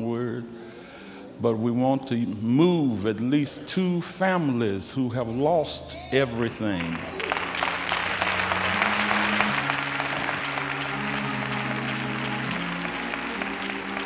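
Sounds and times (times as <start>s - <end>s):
congregation applauding: 6.2s - 14.0s
music with sustained low chords: 6.3s - 14.0s.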